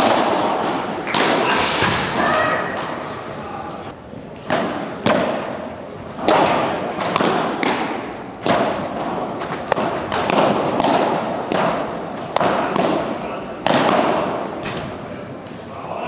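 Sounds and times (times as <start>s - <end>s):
ball bouncing on court: 6.2s - 14.9s
padel ball hit by rackets: 6.2s - 14.9s.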